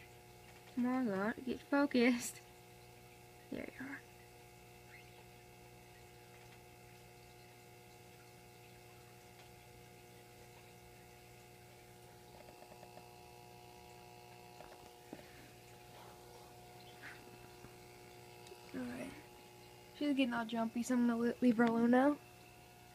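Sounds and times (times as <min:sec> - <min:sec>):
faint ticks: 0:04.1 - 0:09.7, 0:12.2 - 0:13.2.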